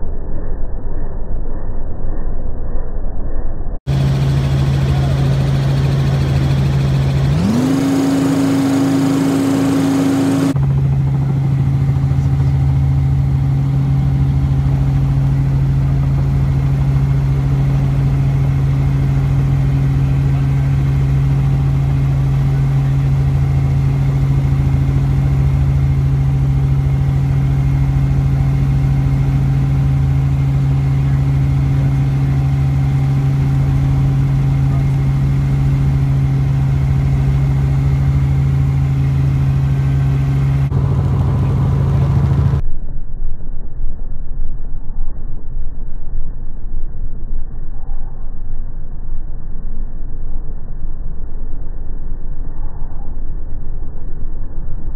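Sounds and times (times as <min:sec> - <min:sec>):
helicopter engine and rotors drone: 0:03.9 - 0:42.6.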